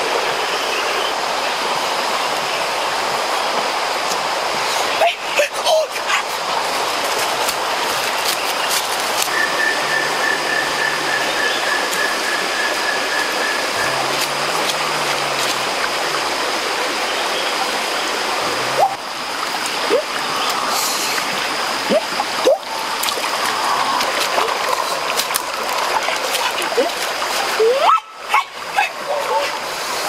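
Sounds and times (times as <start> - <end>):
water rushing over stones: 0.0 - 30.0.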